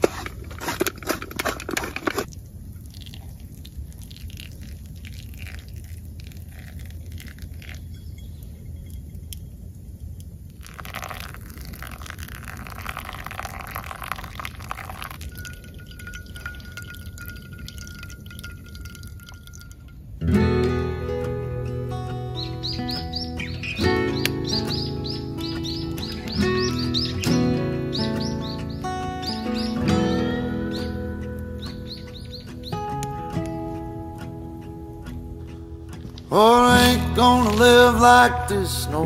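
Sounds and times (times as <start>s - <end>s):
hot water pouring onto coffee: 2.2s - 7.9s, 10.6s - 19.8s
water dripping through filter: 2.2s - 9.5s, 10.1s - 20.1s, 30.6s - 37.8s
music: 20.2s - 39.0s.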